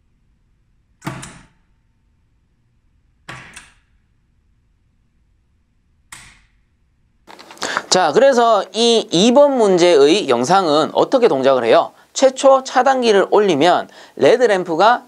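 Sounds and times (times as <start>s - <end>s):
power relay clacking: 3.3s - 3.9s.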